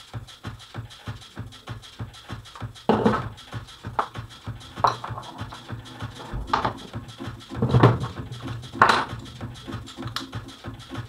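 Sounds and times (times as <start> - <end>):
metal parts knocking and clinking: 4.7 - 9.3.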